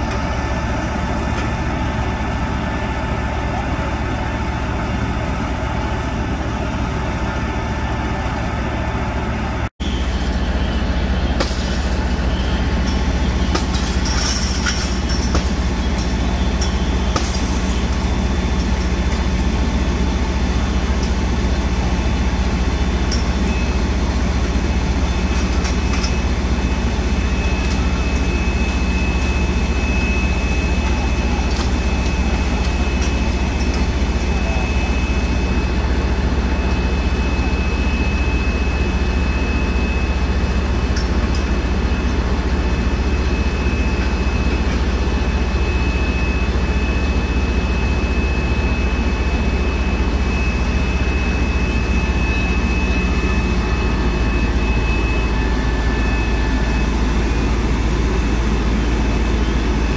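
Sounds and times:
diesel engines running: 0.0s - 59.9s.

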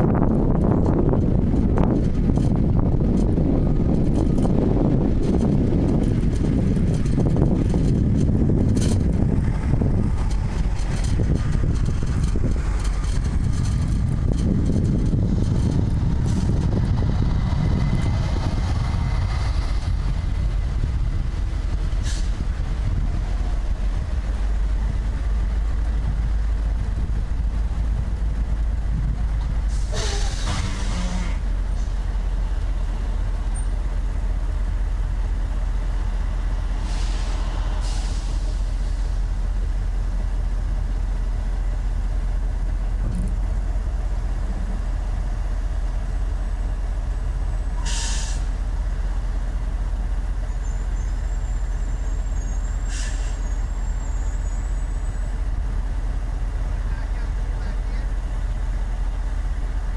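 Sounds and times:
vehicle engine and road rumble: 0.0s - 59.9s
short hiss bursts: 47.8s - 48.5s.

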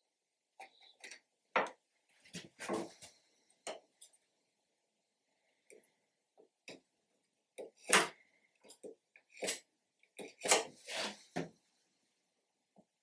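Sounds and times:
knife scratching wood: 10.2s - 11.5s.

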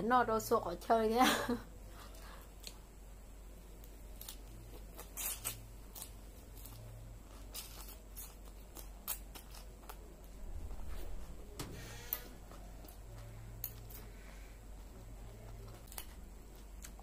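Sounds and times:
crunchy chewing of vegetables: 3.7s - 17.0s
low rumble: 10.4s - 12.5s.

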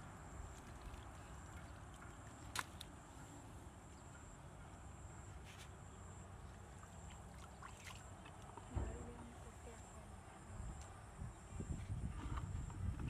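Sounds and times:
hands splashing in shallow water: 0.5s - 3.0s, 6.9s - 8.7s.

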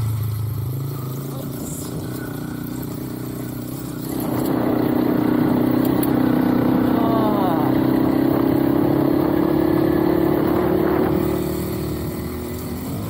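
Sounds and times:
motorbike engine running: 0.0s - 13.0s.

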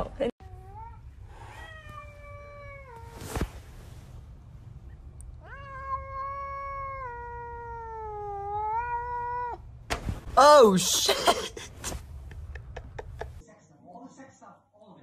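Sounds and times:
cat yowling: 5.4s - 9.6s.

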